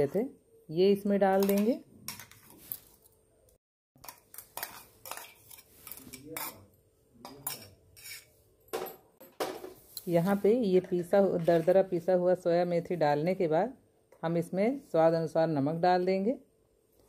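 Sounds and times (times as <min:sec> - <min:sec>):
spoon clinking and scraping steel: 0:04.0 - 0:06.7, 0:07.3 - 0:08.4.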